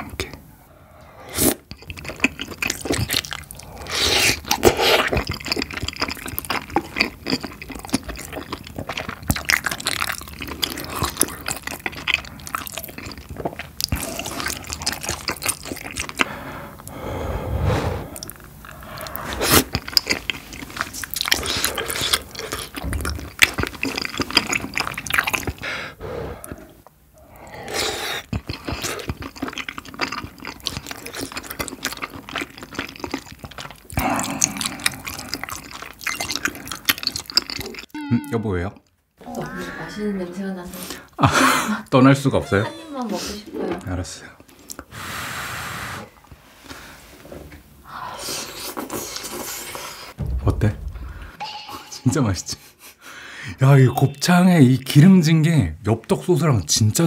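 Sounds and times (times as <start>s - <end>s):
wet chewing mouth sounds: 1.3s - 17.1s, 18.1s - 37.9s, 43.8s - 44.9s.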